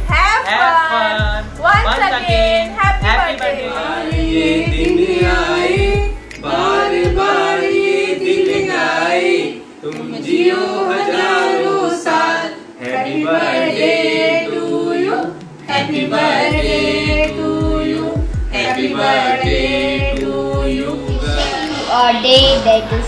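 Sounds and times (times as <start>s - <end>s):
low thumping beat: 0.0s - 0.5s, 1.2s - 9.0s, 15.2s - 23.0s
group singing birthday song: 0.0s - 23.0s.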